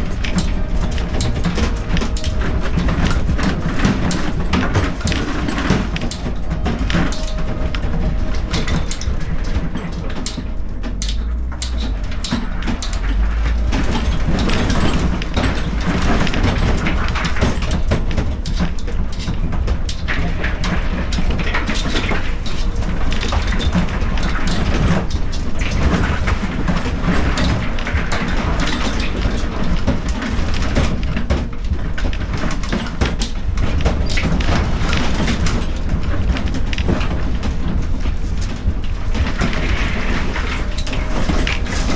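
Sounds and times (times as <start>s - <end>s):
vehicle on rough ground: 0.0s - 41.9s.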